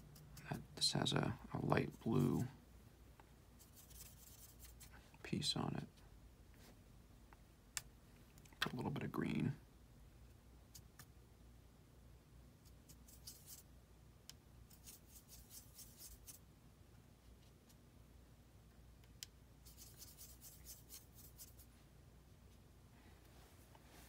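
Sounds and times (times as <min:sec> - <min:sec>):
brush scratching on paper: 0:03.6 - 0:05.0, 0:12.6 - 0:13.7, 0:14.7 - 0:16.4, 0:19.6 - 0:21.7.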